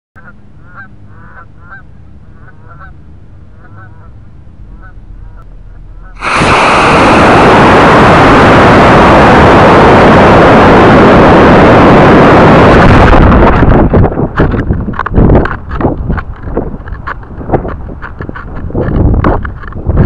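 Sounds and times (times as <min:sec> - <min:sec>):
geese honking: 0:00.2 - 0:06.2
rocket motor rushing: 0:06.1 - 0:20.0.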